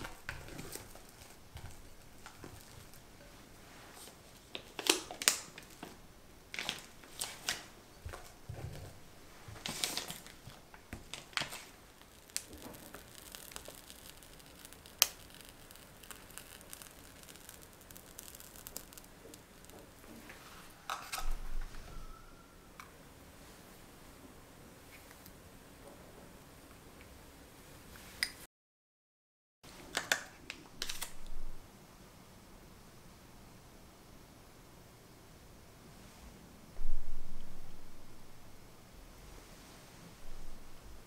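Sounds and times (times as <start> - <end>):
plastic piping bag crinkling: 0.0 - 21.4, 30.8 - 31.3
plastic sheet crinkling: 0.0 - 21.4, 30.8 - 31.3.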